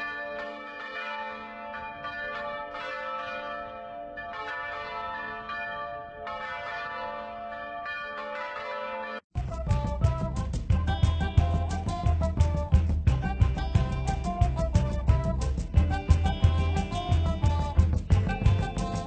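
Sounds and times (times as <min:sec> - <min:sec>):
church bells ringing: 0:00.0 - 0:09.2.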